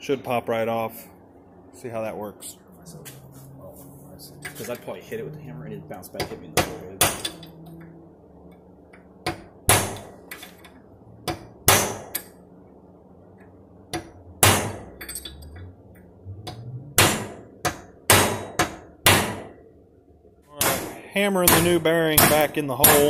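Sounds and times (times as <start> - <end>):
hammer striking steel parts: 6.2 - 7.9, 9.2 - 12.4, 13.9 - 15.6, 16.4 - 19.6, 20.6 - 23.0.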